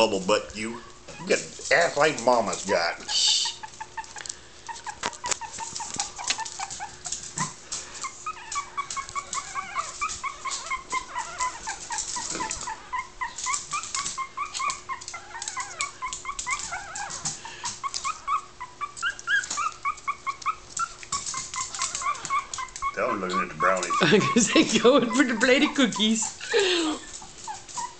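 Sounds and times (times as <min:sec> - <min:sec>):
puppies whining: 0:00.0 - 0:27.9.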